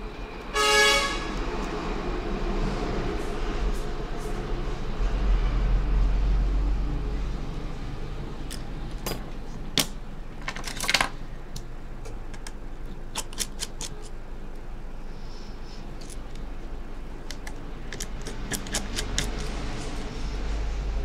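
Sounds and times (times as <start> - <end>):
steady low hum: 0.0 - 21.0
metal tools clicking on phone parts: 8.5 - 11.2, 12.1 - 14.2, 16.0 - 16.5, 17.2 - 20.1.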